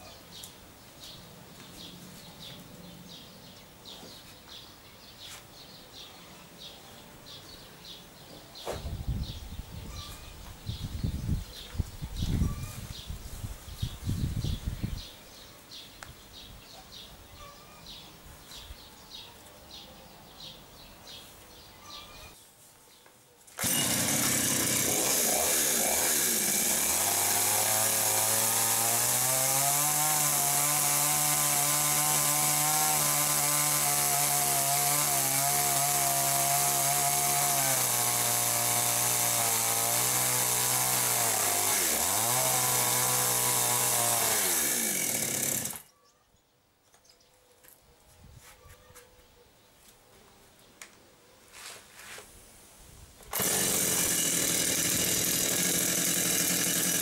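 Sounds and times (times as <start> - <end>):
faint outdoor sound: 0.0 - 26.0, 45.6 - 55.7
chainsaw cutting timber: 23.6 - 45.9, 53.2 - 57.0.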